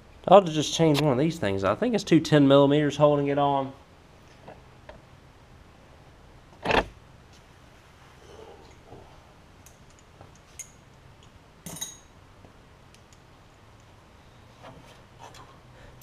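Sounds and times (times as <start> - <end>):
metal tools clinking: 9.9 - 10.9, 11.6 - 12.2.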